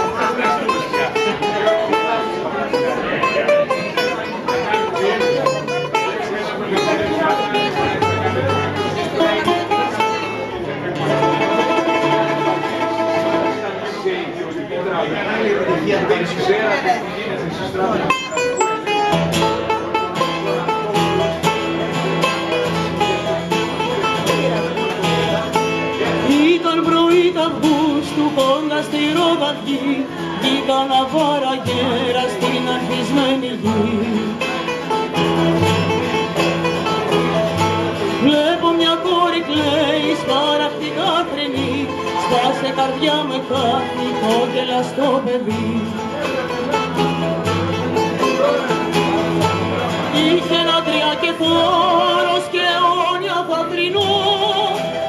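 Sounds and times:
long-necked lute: 0.0 - 14.4, 18.0 - 55.0
acoustic guitar: 0.0 - 55.0
person singing: 26.2 - 34.8, 38.1 - 46.5, 50.0 - 55.0.

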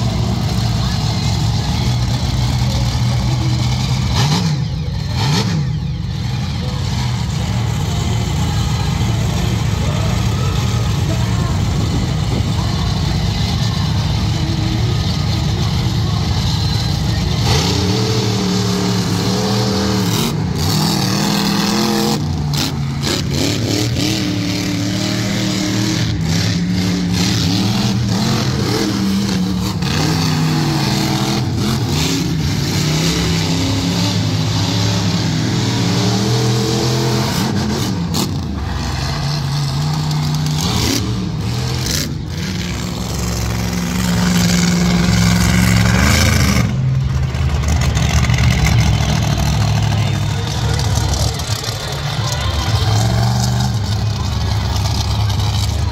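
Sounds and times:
truck engines revving: 0.0 - 55.9.

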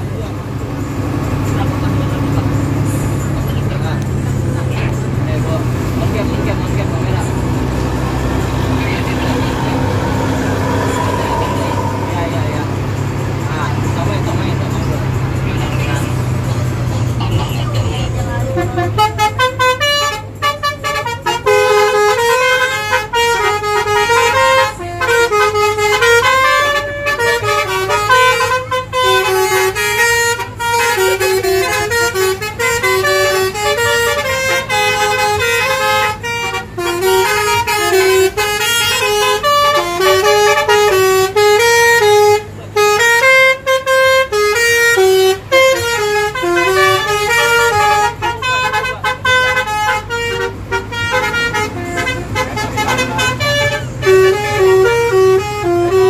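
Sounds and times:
bus engine low hum: 0.0 - 56.0
multi-tone air horn melody: 7.2 - 13.2, 18.8 - 56.0.

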